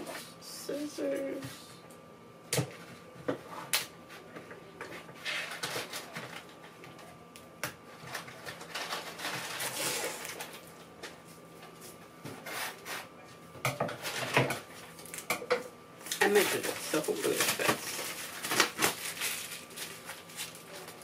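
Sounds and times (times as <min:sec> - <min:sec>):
packaging rustling: 0:08.1 - 0:10.7, 0:16.1 - 0:21.0.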